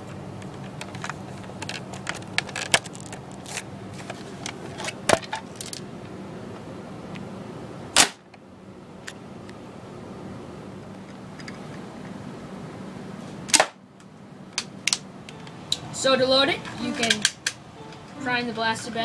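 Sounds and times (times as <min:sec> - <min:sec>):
loud short pop: 0:08.0 - 0:08.2, 0:13.5 - 0:13.8.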